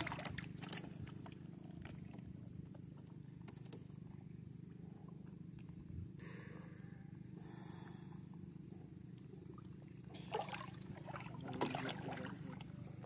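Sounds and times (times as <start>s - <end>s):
water splashing: 0.0s - 2.2s, 9.4s - 13.0s
steady low rumble: 0.0s - 11.6s.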